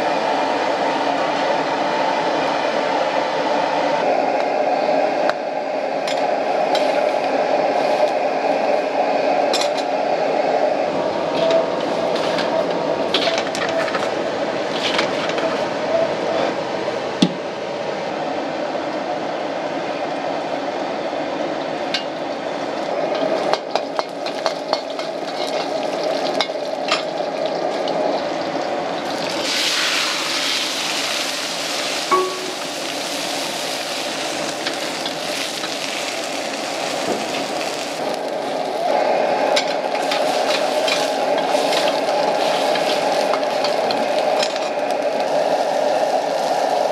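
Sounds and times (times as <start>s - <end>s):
gas burner running: 0.0s - 15.9s, 19.8s - 46.9s
loud sizzling hiss: 21.6s - 46.9s
metal spatula scraping wok: 40.0s - 43.7s.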